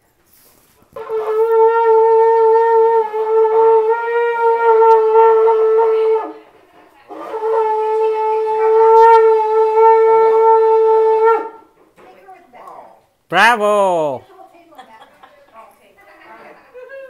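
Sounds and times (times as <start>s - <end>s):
shofar blasts: 1.0s - 4.9s.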